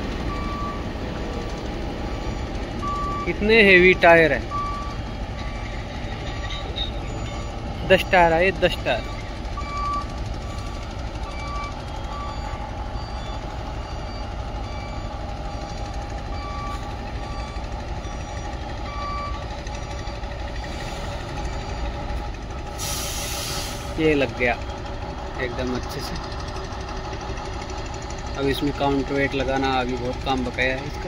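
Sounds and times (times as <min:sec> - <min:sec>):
crane engine running: 0:00.0 - 0:31.0
short high warning beeps: 0:02.2 - 0:15.8.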